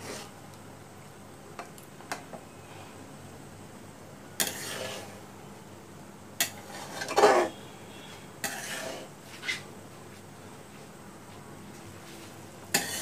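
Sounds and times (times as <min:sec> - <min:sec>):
metal spatula scraping metal pan: 0:04.4 - 0:05.2, 0:06.5 - 0:07.6, 0:08.4 - 0:09.6, 0:12.8 - 0:13.0.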